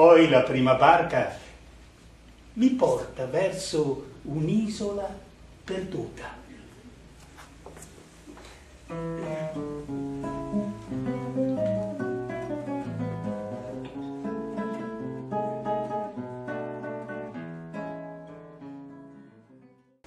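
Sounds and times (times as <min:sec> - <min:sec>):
acoustic guitar plucked notes: 0:08.9 - 0:19.9.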